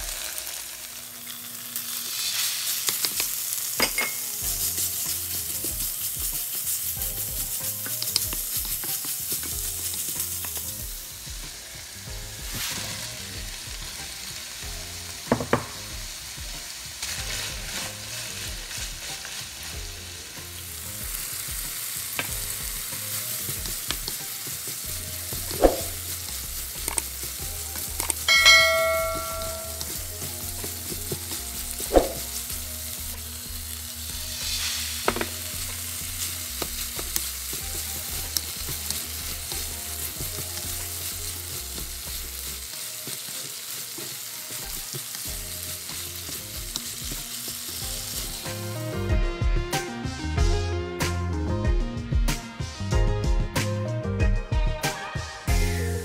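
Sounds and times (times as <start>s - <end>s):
food sizzling in a hot pan: 0.0s - 50.5s, 54.8s - 56.0s
pan ringing when struck: 28.0s - 30.2s.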